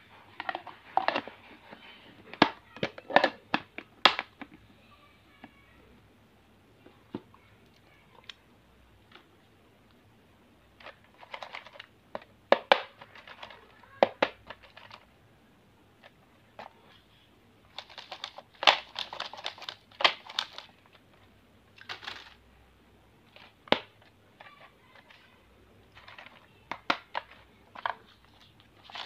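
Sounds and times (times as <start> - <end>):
plastic boxes clicking: 17.7 - 20.7, 21.8 - 22.4
wrappers crinkling: 17.7 - 20.7.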